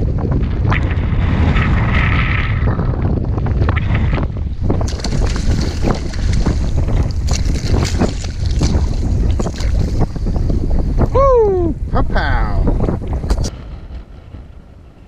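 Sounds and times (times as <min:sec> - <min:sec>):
wind buffeting microphone: 0:00.0 - 0:15.0
fish splashing in water: 0:04.8 - 0:10.1.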